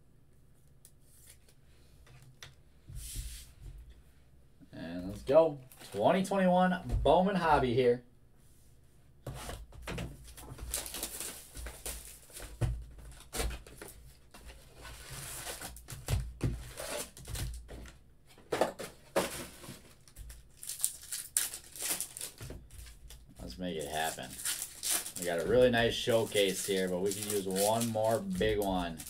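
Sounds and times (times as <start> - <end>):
foil packs crinkling: 10.2 - 14.0, 14.8 - 17.9, 19.1 - 29.0
shrink wrap tearing: 10.6 - 12.4, 20.0 - 23.2, 23.8 - 29.0.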